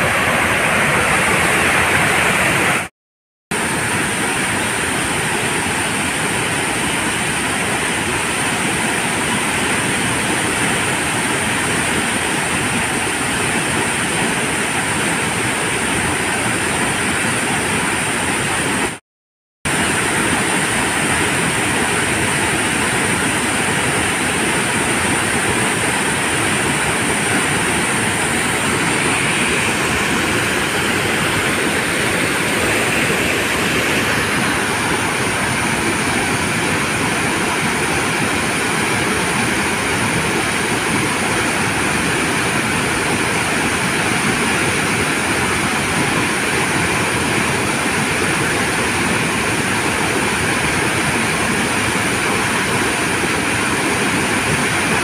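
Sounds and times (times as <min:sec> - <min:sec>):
waterfall rushing: 0:00.0 - 0:02.9, 0:03.6 - 0:19.0, 0:19.7 - 0:55.0.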